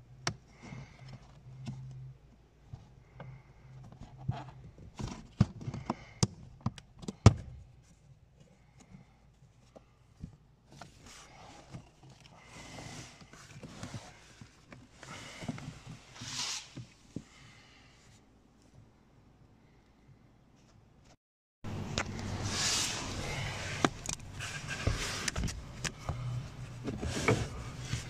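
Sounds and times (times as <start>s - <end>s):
paper filter rustling and scraping: 22.2s - 28.0s.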